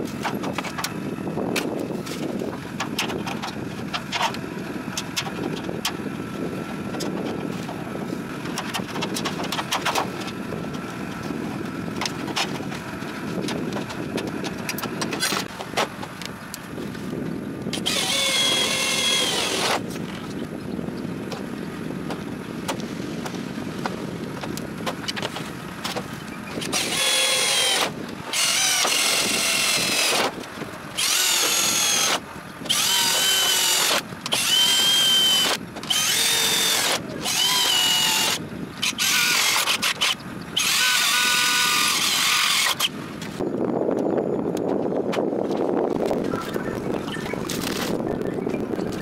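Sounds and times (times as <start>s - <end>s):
cordless drill whining: 17.8s - 19.8s, 26.6s - 30.3s, 31.0s - 42.9s.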